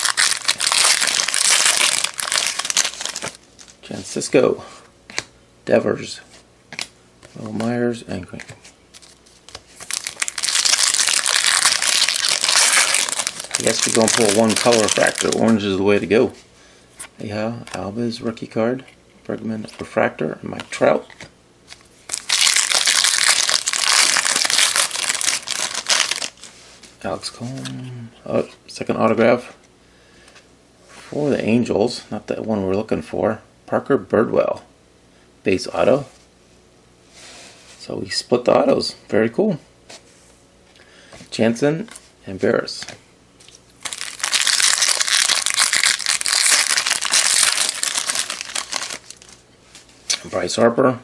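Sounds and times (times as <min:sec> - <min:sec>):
foil wrapper crinkling: 0:00.0 - 0:03.8, 0:08.9 - 0:15.8, 0:21.7 - 0:26.5, 0:43.4 - 0:49.4.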